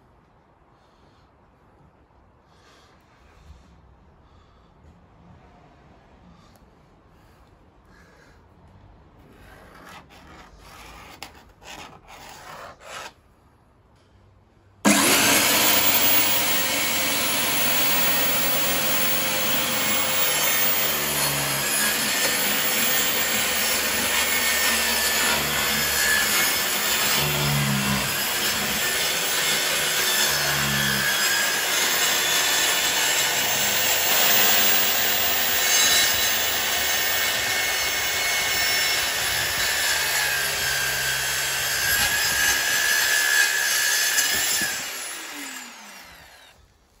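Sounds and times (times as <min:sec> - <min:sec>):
circular saw cutting: 0:14.8 - 0:46.7.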